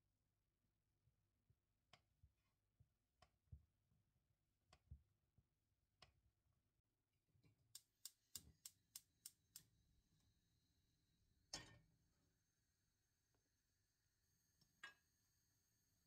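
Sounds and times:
gas hob igniter clicking: 7.7 - 9.7
gas burner hissing: 7.8 - 9.7.

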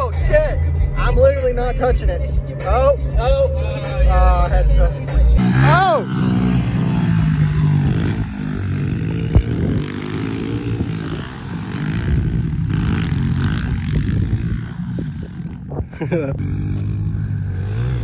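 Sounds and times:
small motorbike engine revving: 5.4 - 18.0.

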